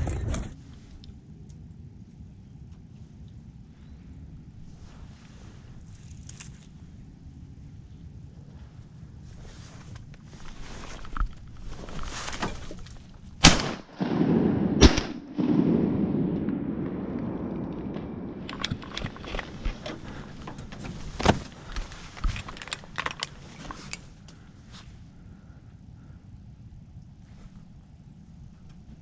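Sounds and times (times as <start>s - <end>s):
shotgun shots with echo: 13.4s - 18.4s.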